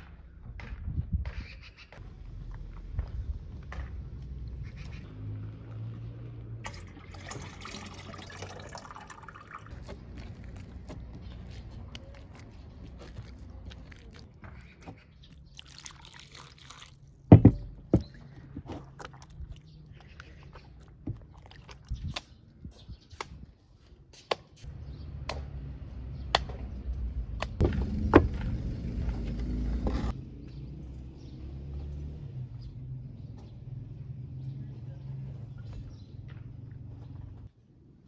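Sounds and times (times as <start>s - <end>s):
water pouring from a jug: 6.6s - 10.7s, 15.3s - 17.3s
hands kneading wet dough: 9.7s - 17.1s.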